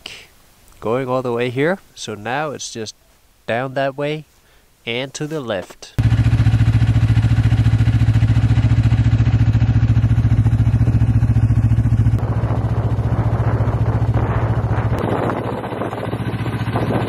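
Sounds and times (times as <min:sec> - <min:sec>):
snowmobile engine running: 0:06.0 - 0:17.0.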